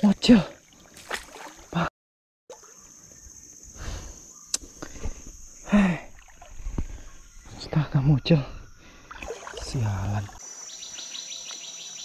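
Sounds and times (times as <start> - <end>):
high insect drone: 2.5 - 12.0.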